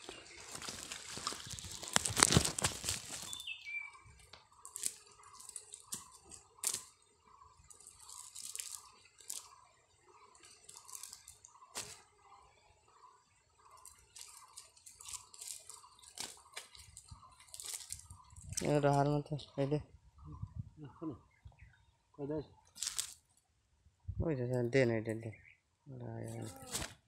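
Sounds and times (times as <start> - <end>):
net rustling against dry leaves: 0.0 - 6.9, 7.6 - 9.6, 10.4 - 12.1, 13.8 - 19.0, 22.8 - 23.2, 26.4 - 27.0.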